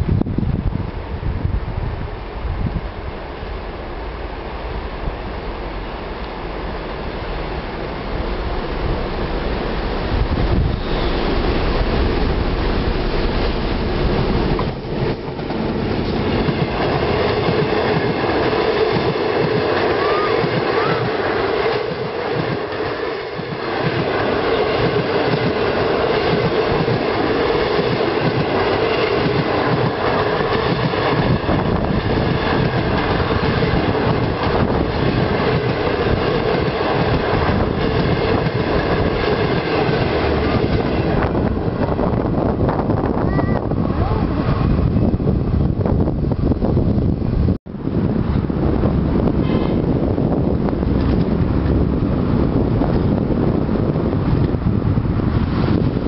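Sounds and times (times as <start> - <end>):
diesel locomotive passing: 0.0 - 56.0
train wheels rumbling on rails: 0.0 - 56.0.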